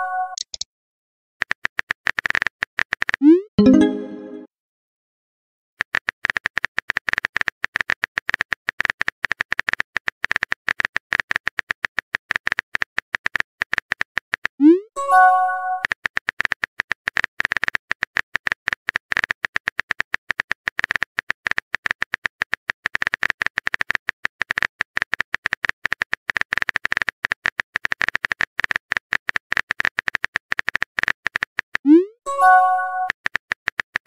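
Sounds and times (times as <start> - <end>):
phone keyboard clicking: 0.4 - 0.6.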